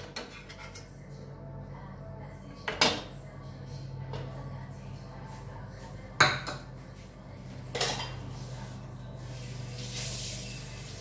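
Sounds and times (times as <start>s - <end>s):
dishes and utensils clinking: 0.0s - 1.0s, 7.7s - 8.4s
steady low hum: 0.3s - 11.0s.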